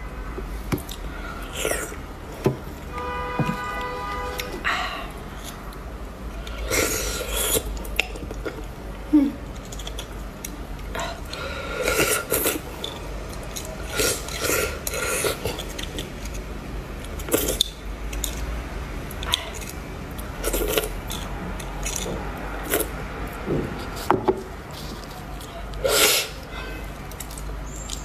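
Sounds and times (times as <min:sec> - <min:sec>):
wet slurping and chewing: 0:06.4 - 0:08.7, 0:09.6 - 0:18.5, 0:19.1 - 0:26.4.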